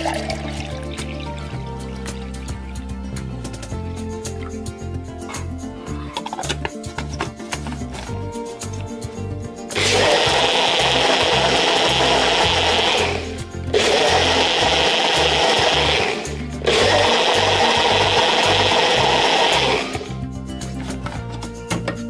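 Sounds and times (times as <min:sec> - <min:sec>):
blender running: 0:09.8 - 0:20.2.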